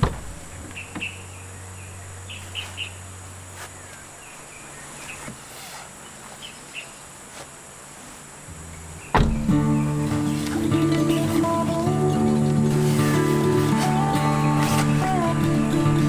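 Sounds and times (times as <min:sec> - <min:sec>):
birds chirping: 0:00.0 - 0:07.2, 0:08.5 - 0:16.0
low steady hum: 0:00.0 - 0:16.0
car door unlatching click: 0:09.1 - 0:09.6.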